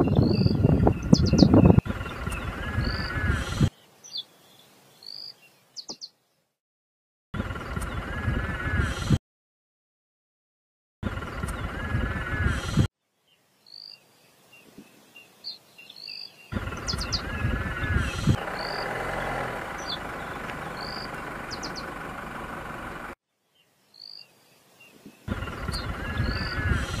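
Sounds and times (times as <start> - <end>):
birds chirping: 0.0 - 6.5, 7.4 - 9.2, 11.0 - 27.0
loud low rumbling noise: 7.4 - 9.2, 11.0 - 12.9, 16.5 - 23.2, 25.3 - 27.0.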